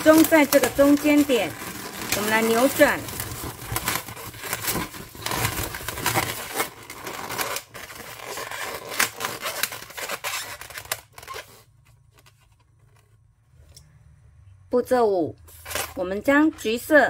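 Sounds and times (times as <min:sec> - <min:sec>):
balloons squeaking as twisted: 0:00.0 - 0:13.0.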